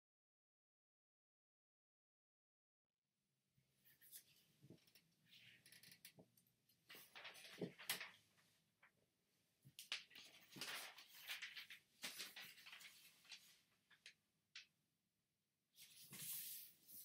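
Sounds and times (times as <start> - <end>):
paper crinkling as folded: 6.9 - 8.4, 9.8 - 14.2
paper rustling: 6.9 - 8.5, 9.8 - 14.2, 15.8 - 17.0.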